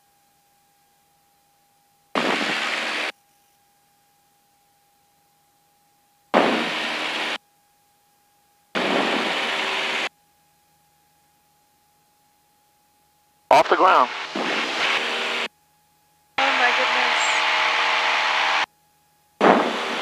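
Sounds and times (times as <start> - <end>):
faint steady tone: 0.0 - 2.1, 3.1 - 6.3, 10.0 - 14.2
engine and airflow noise bursts: 16.4 - 18.7.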